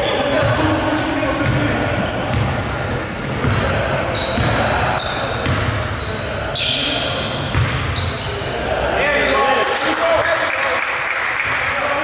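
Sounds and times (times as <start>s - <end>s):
sneakers squeaking: 0.0s - 9.6s
basketball bouncing on court: 0.2s - 6.0s, 7.5s - 8.1s.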